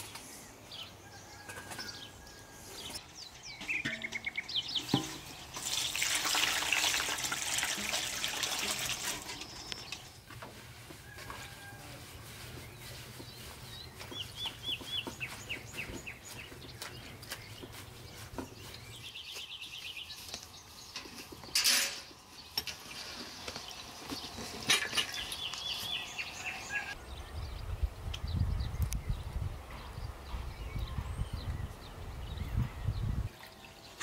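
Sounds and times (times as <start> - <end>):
metal bowl clink: 3.6 - 4.4
hands rustling petals in metal bowls: 7.7 - 21.4
birds calling high notes: 25.1 - 27.3.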